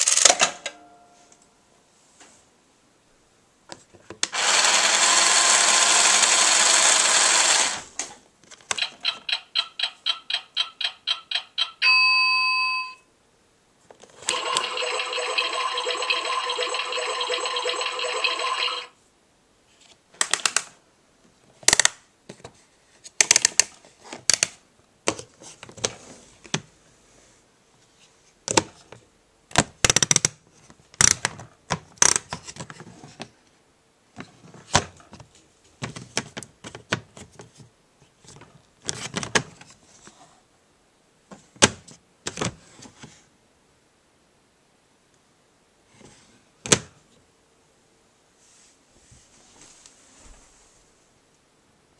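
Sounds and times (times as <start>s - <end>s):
plastic toy clicks and knocks: 8.6s - 11.8s, 14.2s - 18.8s
toy electronic sound: 8.8s - 11.8s, 14.2s - 18.9s.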